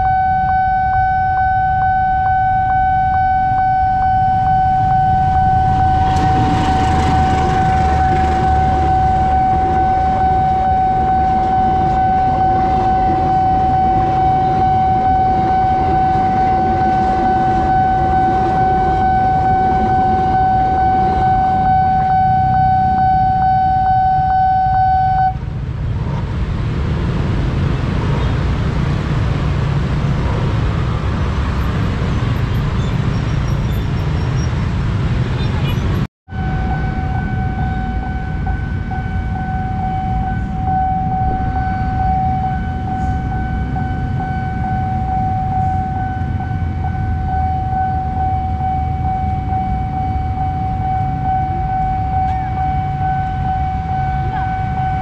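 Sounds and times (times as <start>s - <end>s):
level crossing alarm tone: 0.0s - 25.4s, 36.3s - 55.0s
motorcycle traffic: 0.0s - 55.0s
train rumbling past: 4.3s - 23.0s, 25.4s - 48.2s.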